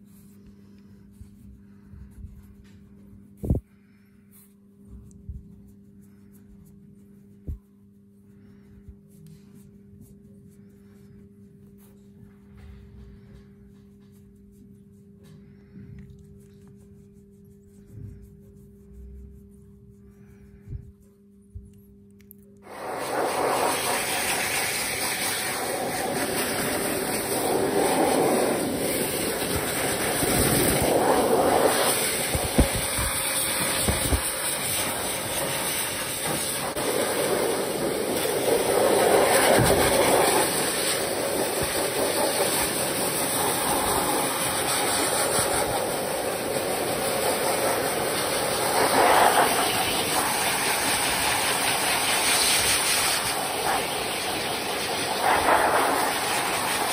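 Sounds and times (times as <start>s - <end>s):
pet dryer blowing air: 22.6s - 56.9s.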